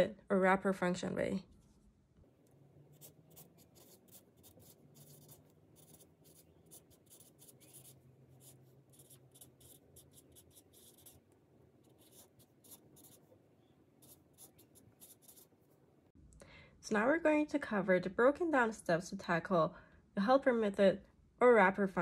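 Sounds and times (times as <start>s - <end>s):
marker scratching on pad: 2.8s - 15.8s.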